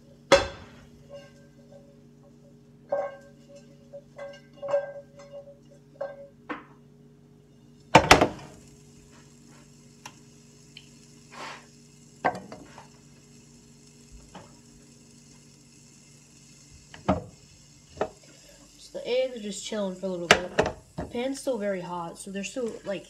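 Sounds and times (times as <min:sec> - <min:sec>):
faint sizzling hiss: 0:07.4 - 0:23.0.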